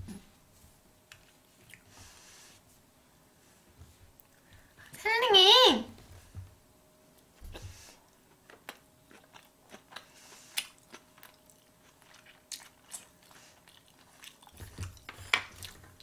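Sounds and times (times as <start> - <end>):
person chewing food: 1.1 - 2.3, 7.5 - 16.0.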